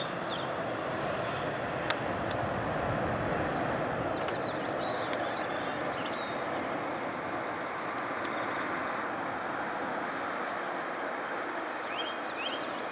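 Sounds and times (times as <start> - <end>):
small birds chirping: 0.0 - 9.0
jet engines rushing rumble: 0.0 - 11.0.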